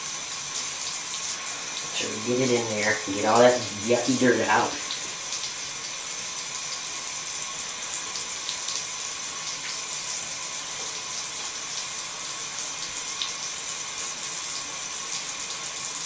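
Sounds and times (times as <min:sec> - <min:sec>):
water running from tap into tub: 0:00.0 - 0:16.0.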